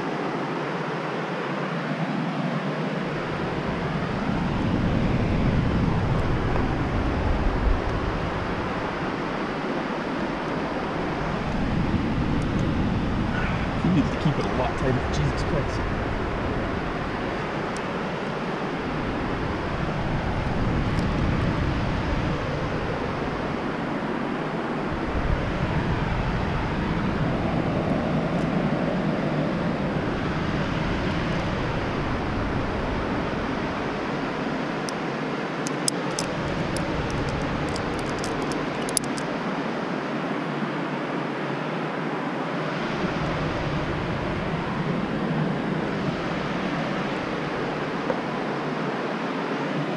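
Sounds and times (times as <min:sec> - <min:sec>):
wind rushing over microphone: 0:00.0 - 0:49.9
small clicks: 0:35.7 - 0:39.3.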